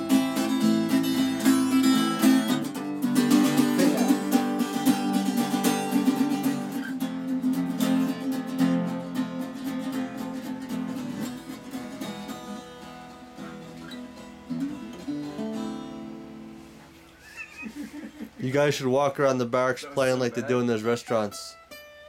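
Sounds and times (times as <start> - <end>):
acoustic guitars playing: 0.0 - 22.0.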